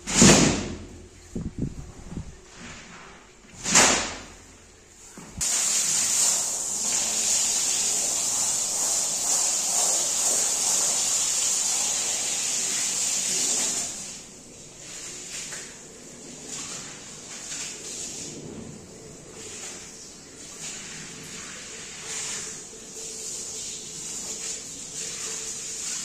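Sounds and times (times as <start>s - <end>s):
pressure washer spraying: 5.4s - 14.2s.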